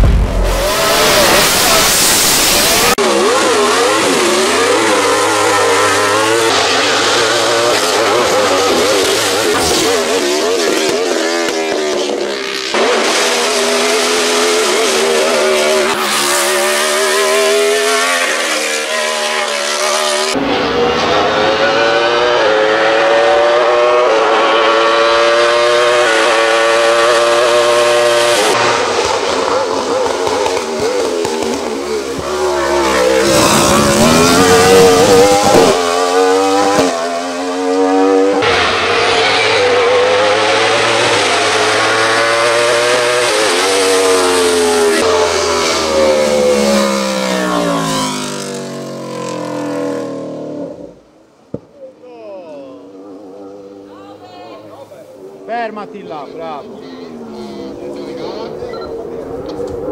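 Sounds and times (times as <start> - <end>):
race car engine at full throttle: 0.0 - 51.6, 55.0 - 59.9.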